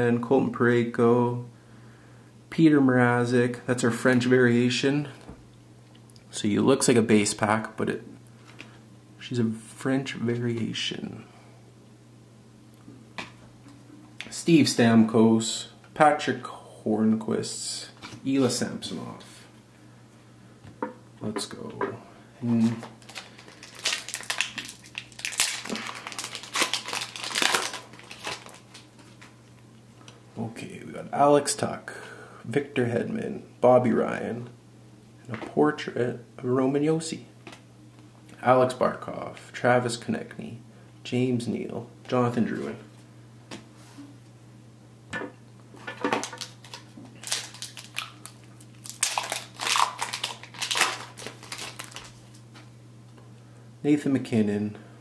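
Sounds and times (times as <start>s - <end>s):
wrapper crinkling: 22.8s - 29.6s, 46.0s - 52.4s.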